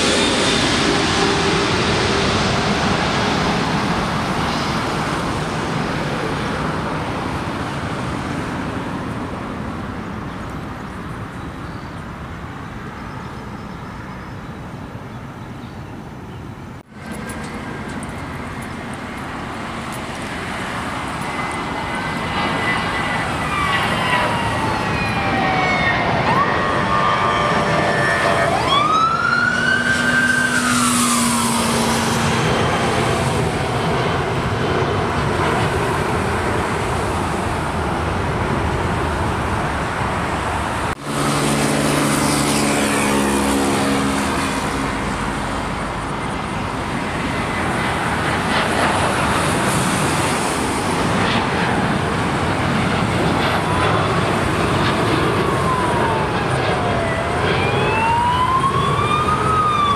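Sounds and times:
jet engines roaring: 0.0 - 12.8, 16.8 - 59.9
siren wailing: 21.0 - 33.0, 54.0 - 59.9.

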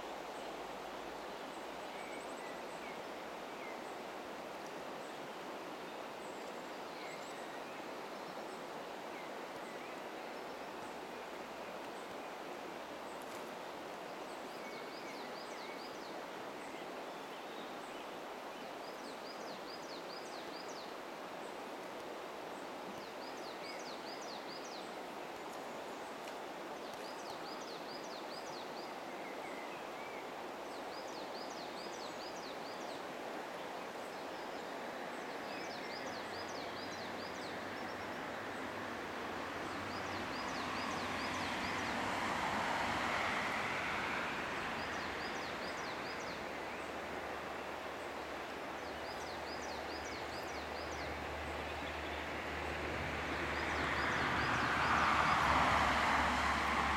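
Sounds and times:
river water flowing: 0.0 - 56.9
passing vehicle rumble: 37.0 - 48.4, 50.6 - 56.9.

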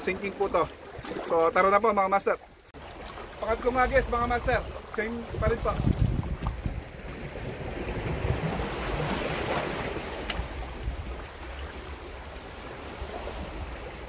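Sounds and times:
sea waves washing on rocks: 0.0 - 14.0
wind buffeting microphone: 3.8 - 12.1.

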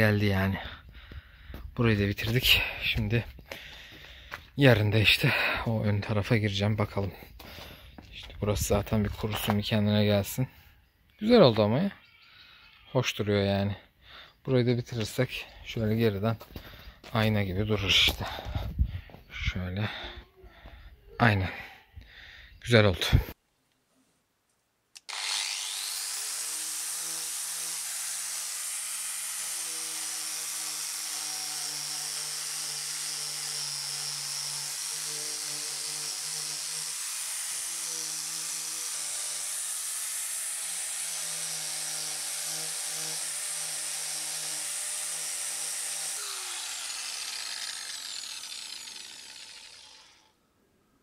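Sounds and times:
angle grinder sanding: 25.0 - 50.3.

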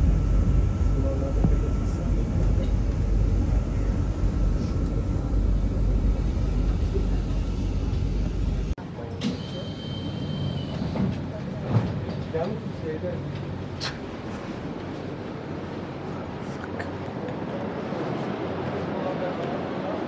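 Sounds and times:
thin steady high tone: 0.0 - 8.6
vehicle rumble in motion: 0.0 - 8.8.

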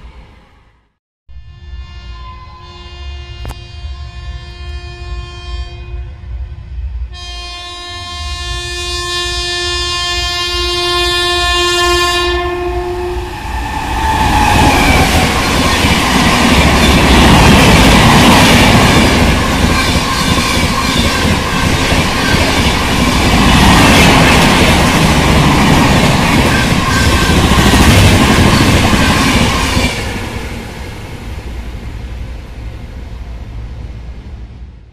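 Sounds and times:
train passing at speed: 0.0 - 34.9
train horn blast: 1.4 - 6.4, 7.1 - 15.0.

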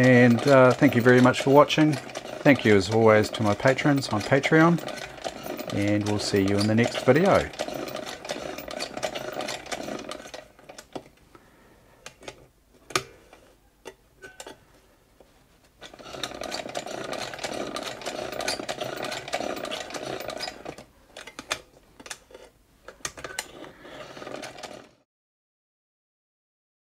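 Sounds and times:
sewing machine chattering: 0.0 - 10.9, 15.8 - 20.8, 23.2 - 25.0.

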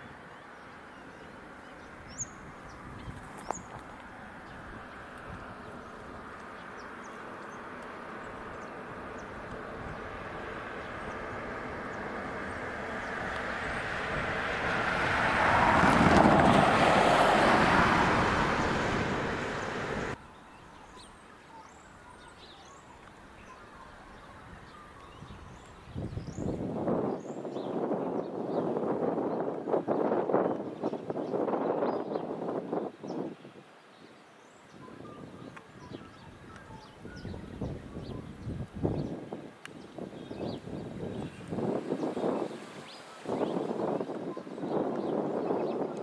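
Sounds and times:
vehicle passing on highway: 0.1 - 20.2, 39.9 - 46.0.

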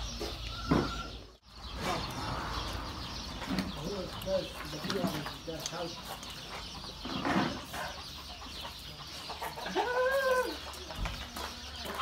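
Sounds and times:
chicken calling: 0.0 - 12.0.

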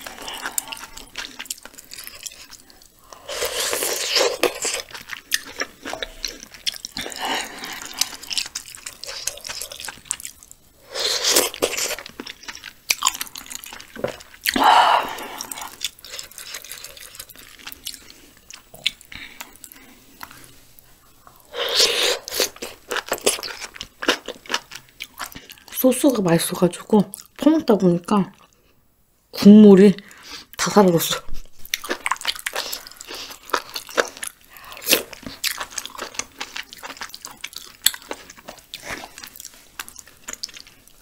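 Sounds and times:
wet chewing and mouth sounds: 0.0 - 25.8, 31.3 - 41.0.

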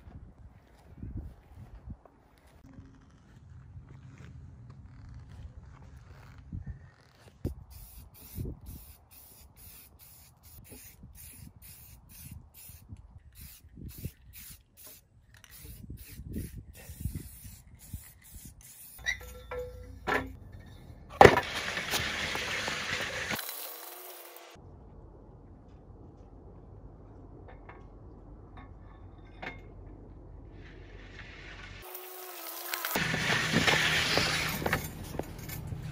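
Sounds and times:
aerosol spray bursts: 7.7 - 19.0
metal sled scraping on concrete: 19.0 - 24.6, 30.6 - 35.9.

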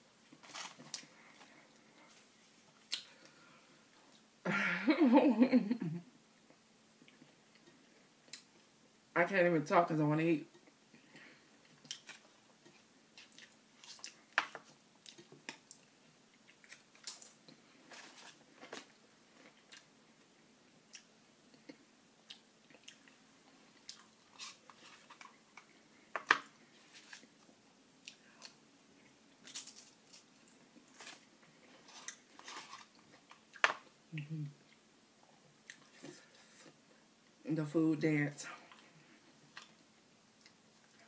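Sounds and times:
chewing and crunching: 11.6 - 19.9, 20.9 - 34.0.

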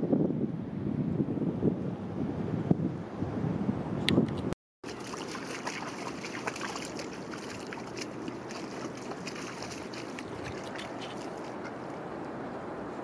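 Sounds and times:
water trickling and splashing: 4.8 - 12.4.

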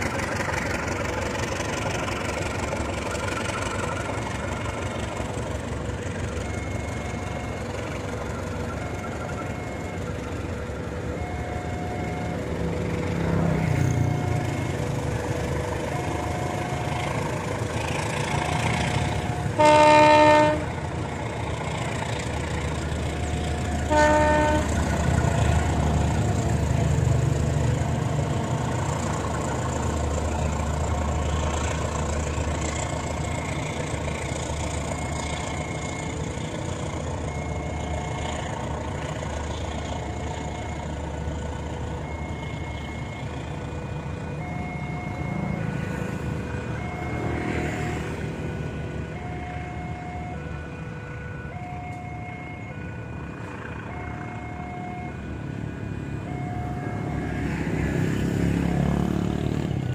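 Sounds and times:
train coaches rumbling on track: 0.0 - 59.9
train horn blasts: 18.5 - 20.8, 23.8 - 25.1.

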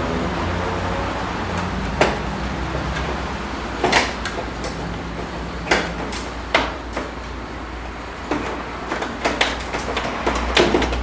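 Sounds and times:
sharp clicks and knocks: 1.5 - 7.4, 8.2 - 11.0.

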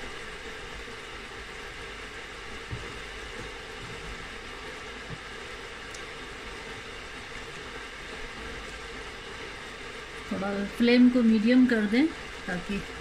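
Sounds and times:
sauce simmering with hiss: 0.0 - 13.0
faint ticks: 5.9 - 6.1.

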